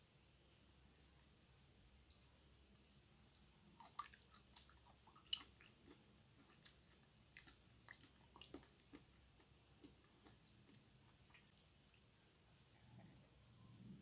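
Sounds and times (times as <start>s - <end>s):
wet chewing: 3.8s - 12.1s.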